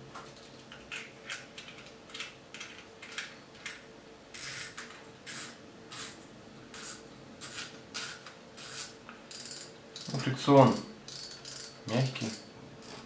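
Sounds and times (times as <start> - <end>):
fishing reel ratcheting: 8.0 - 13.0.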